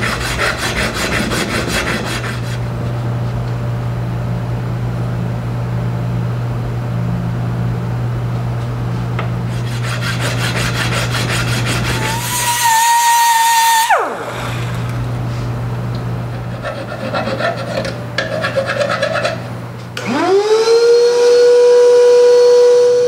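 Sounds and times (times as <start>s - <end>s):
hand file rasping on steel: 0.0s - 2.6s, 9.5s - 12.5s, 16.5s - 19.4s
steady low hum: 0.0s - 20.0s
loud high whine: 11.7s - 16.0s, 20.0s - 23.0s.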